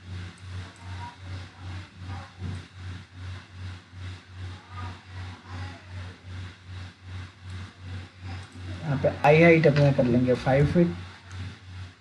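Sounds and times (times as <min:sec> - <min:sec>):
pulsing low hum: 0:00.0 - 0:12.0.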